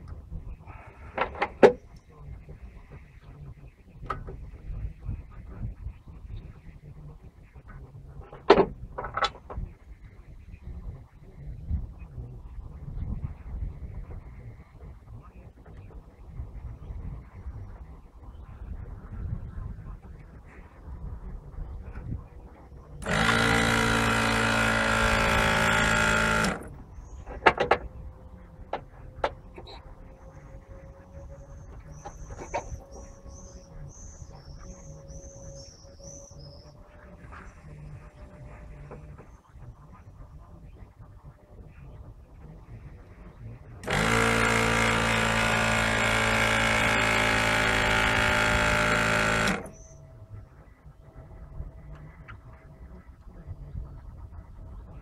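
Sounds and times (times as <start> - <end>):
motor humming: 19.1 - 55.0
small motor running: 22.8 - 27.5, 43.8 - 50.0.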